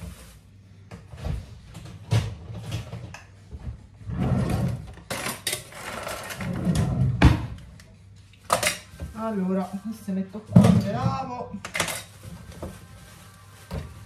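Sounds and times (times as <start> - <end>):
kitchen knocks and clatters: 0.9 - 7.6, 10.5 - 12.8.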